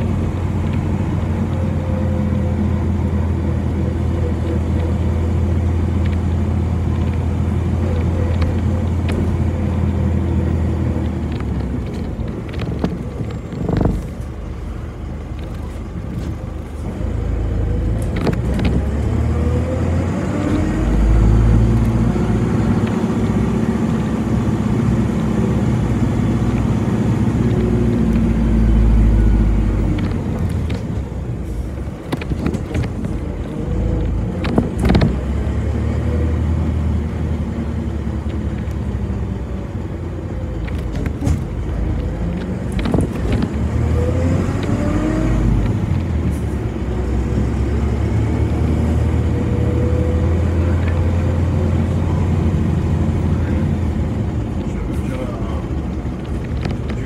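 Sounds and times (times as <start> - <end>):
bus motor drone: 0.0 - 57.0
road noise: 0.0 - 57.0.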